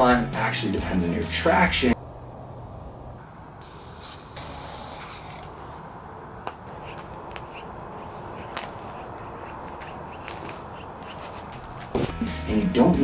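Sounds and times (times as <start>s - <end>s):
aerosol spray can hissing: 3.6s - 5.6s
footsteps on pavement: 5.0s - 12.3s.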